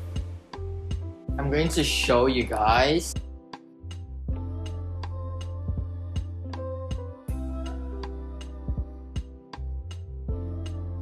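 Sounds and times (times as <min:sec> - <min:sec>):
instrumental music with light beat: 0:00.0 - 0:11.0.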